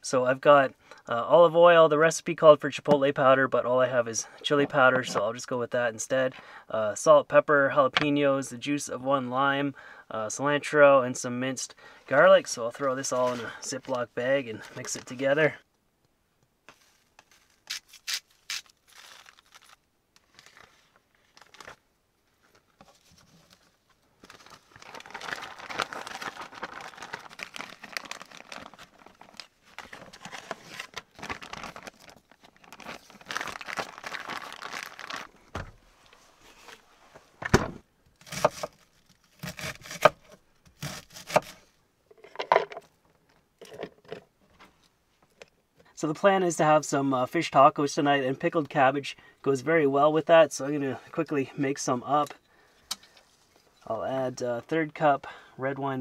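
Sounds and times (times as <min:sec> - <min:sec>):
plastic bag crinkling: 0:17.3 - 0:21.8, 0:22.4 - 0:35.5.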